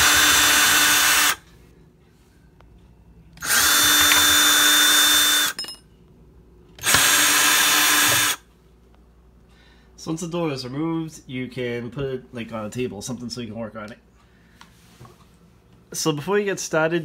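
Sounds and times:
cordless drill motor: 0:00.0 - 0:01.4, 0:03.4 - 0:05.6, 0:06.8 - 0:08.4.

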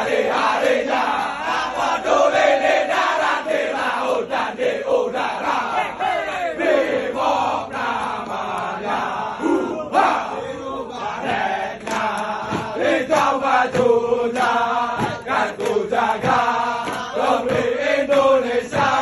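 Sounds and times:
men chanting in unison: 0:00.0 - 0:19.0
feet stamping: 0:14.9 - 0:17.8.

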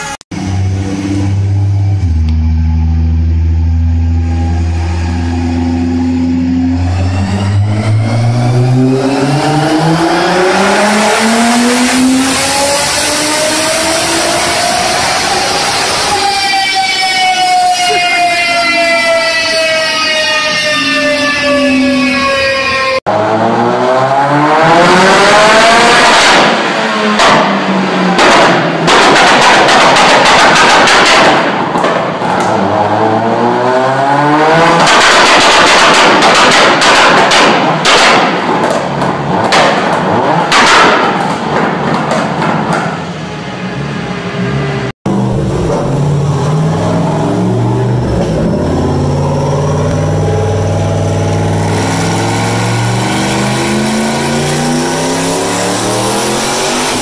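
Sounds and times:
car engine revving hard: 0:00.3 - 0:16.4, 0:23.1 - 0:28.9, 0:32.4 - 0:36.2, 0:43.8 - 0:57.0
rapid crackling bangs: 0:26.2 - 0:32.5, 0:34.8 - 0:42.8.

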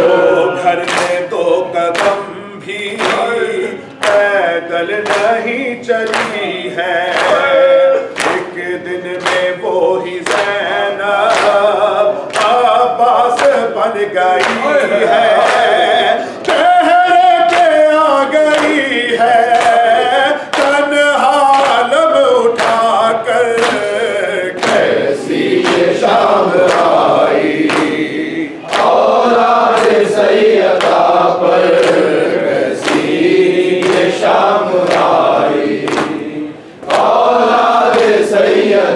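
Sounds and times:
lead reciter: 0:00.0 - 0:38.9
men chanting in unison: 0:00.0 - 0:38.9
hand slaps on chest: 0:35.8 - 0:36.2.

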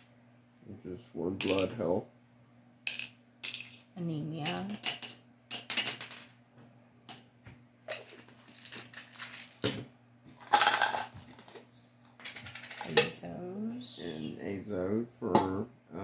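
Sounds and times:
pill bottle rattle: 0:07.9 - 0:09.6.

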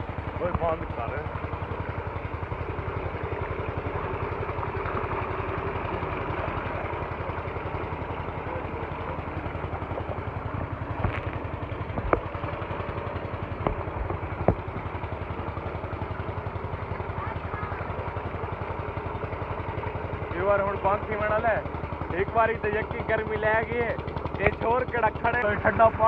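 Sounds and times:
pump engine running: 0:00.0 - 0:26.0
sharp knocks: 0:13.5 - 0:14.8.

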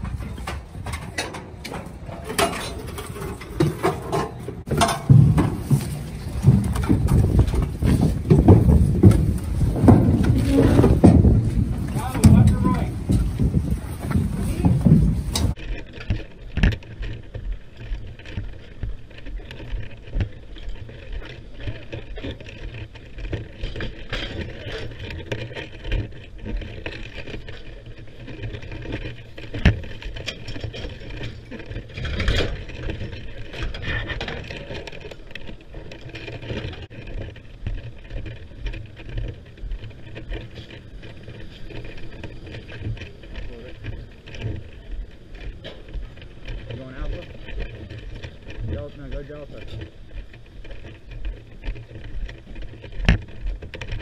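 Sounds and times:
wind rumble on microphone: 0:00.0 - 0:03.6, 0:04.5 - 0:54.0
metal ladder rattling and clanking: 0:00.0 - 0:15.6.

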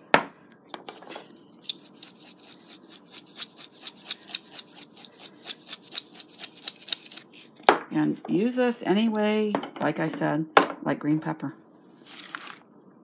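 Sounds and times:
salt and pepper grinder clicking: 0:01.6 - 0:07.2.

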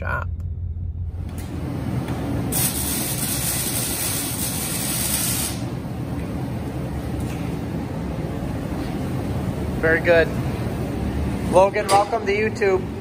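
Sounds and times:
steady low hum: 0:00.0 - 0:13.0
welding arc hissing: 0:02.4 - 0:05.8.

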